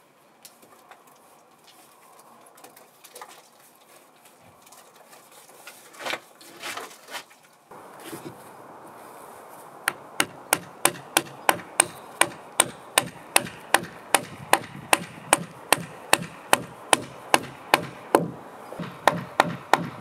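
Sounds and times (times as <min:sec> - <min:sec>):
auger bit knocking: 0:09.9 - 0:20.0
hammer tapping wooden dowel: 0:09.9 - 0:20.0.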